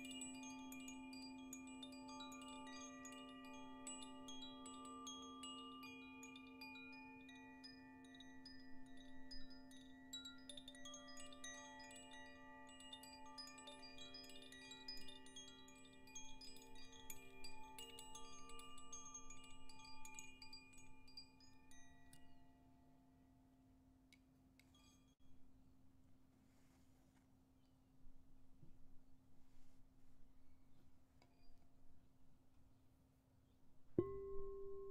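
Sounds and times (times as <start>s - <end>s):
singing bowl humming: 0.0s - 22.3s
wind chime tinkling: 0.0s - 23.1s, 24.6s - 25.2s.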